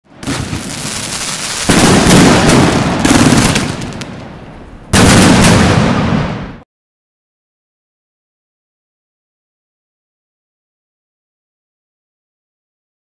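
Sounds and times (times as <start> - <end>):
fireworks bangs and crackles: 0.0 - 6.6.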